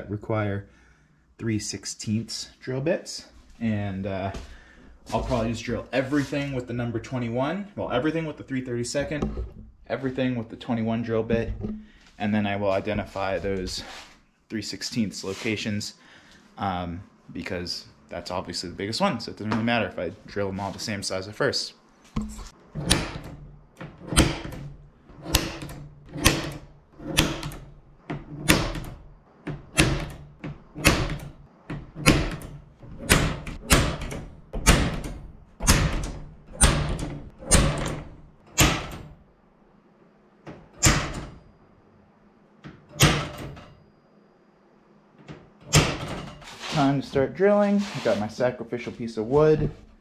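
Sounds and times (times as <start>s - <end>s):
center punch tapping metal: 22.2s - 39.0s, 40.8s - 41.4s.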